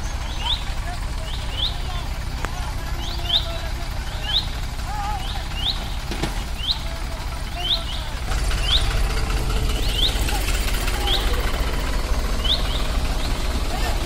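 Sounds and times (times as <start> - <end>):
bird chirping: 0.0 - 2.1, 3.0 - 4.6, 5.2 - 9.0, 9.6 - 11.4, 12.3 - 13.6
diesel tractor engines under load: 0.0 - 14.0.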